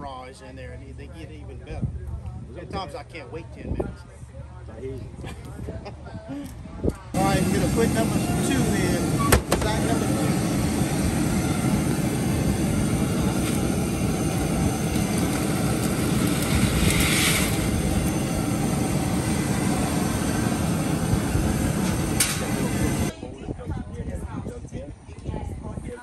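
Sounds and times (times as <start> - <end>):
gas burner roaring: 7.1 - 23.2
rushing hiss of boiling water: 7.2 - 23.1.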